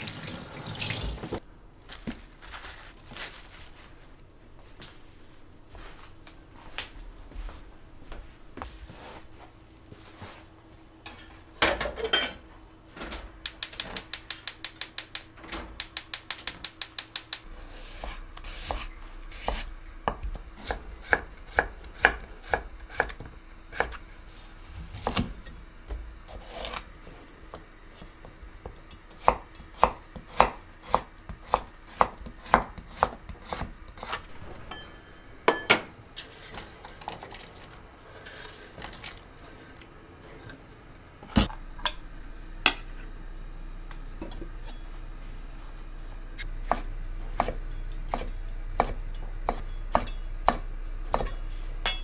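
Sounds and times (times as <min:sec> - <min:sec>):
knife chopping on wooden board: 0:18.0 - 0:24.0, 0:29.2 - 0:34.2, 0:46.6 - 0:51.4.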